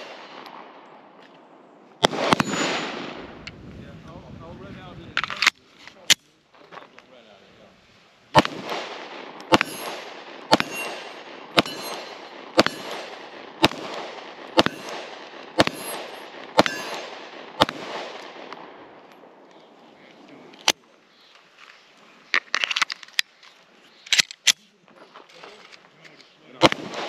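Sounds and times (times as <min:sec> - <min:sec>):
pistol shots with echo: 0:02.0 - 0:03.3, 0:08.3 - 0:19.0, 0:26.6 - 0:27.0.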